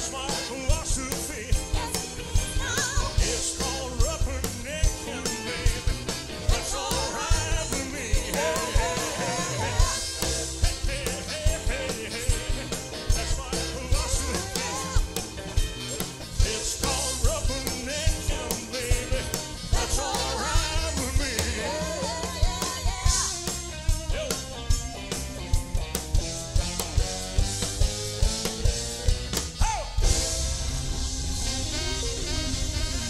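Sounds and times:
man singing lead vocal: 0.0s - 15.4s, 16.2s - 23.4s, 24.0s - 24.8s
driving drum beat: 0.0s - 33.0s
live rock band playing: 0.0s - 33.0s
saxophone: 5.0s - 24.4s, 29.2s - 33.0s.

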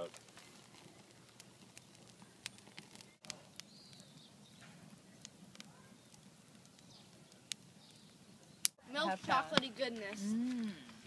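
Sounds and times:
sharp pops and snaps: 0.0s - 8.8s
campfire crackling: 0.0s - 11.0s.

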